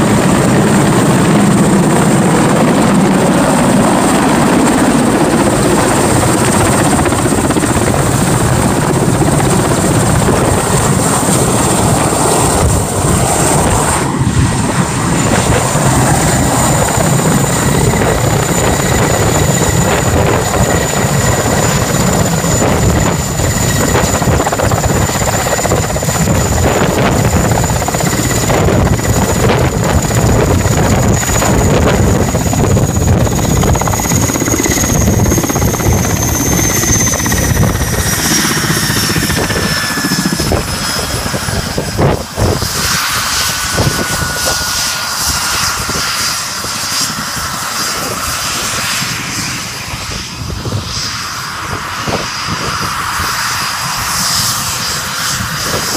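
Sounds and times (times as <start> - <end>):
helicopter rotor beat: 0.0 - 55.9
high turbine engine whine: 0.0 - 55.9.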